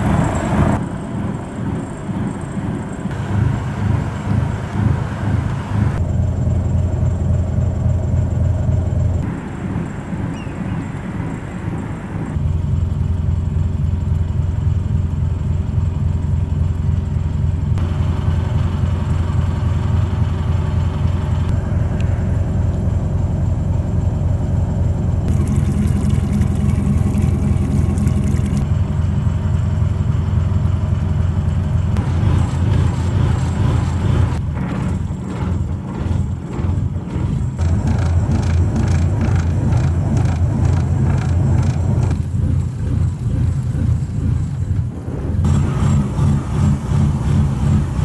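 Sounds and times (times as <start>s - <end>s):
ferry engine humming: 0.0s - 48.0s.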